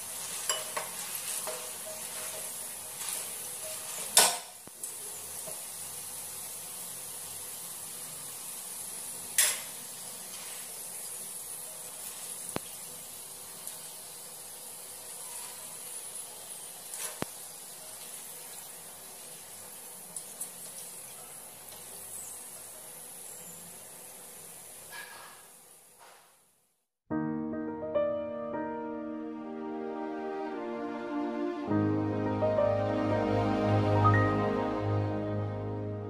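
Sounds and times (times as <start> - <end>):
peas sizzling in hot oil: 0.0 - 26.1.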